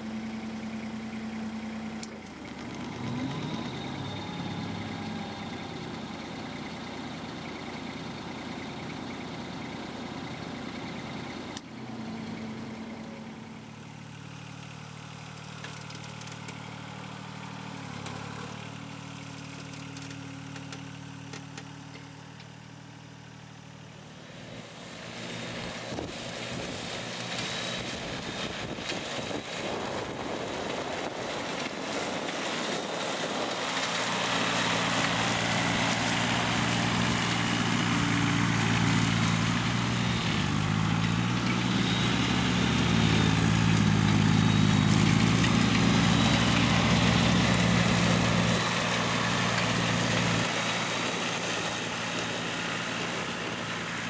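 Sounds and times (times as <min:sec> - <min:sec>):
mower rushing through grass: 0:00.0 - 0:05.8, 0:24.1 - 0:54.0
tractor engine running: 0:00.0 - 0:54.0.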